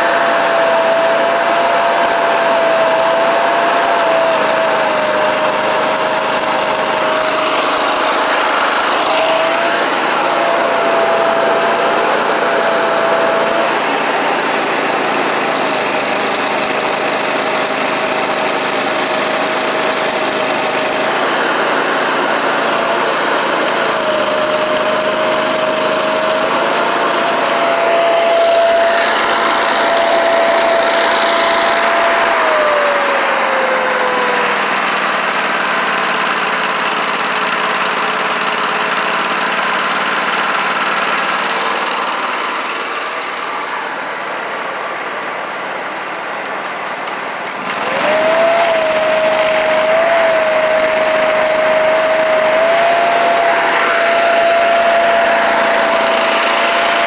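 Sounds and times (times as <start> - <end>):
welder generator engine running: 0.0 - 57.0
welding arc crackle and hiss: 1.0 - 9.8, 14.4 - 32.3, 46.4 - 57.0.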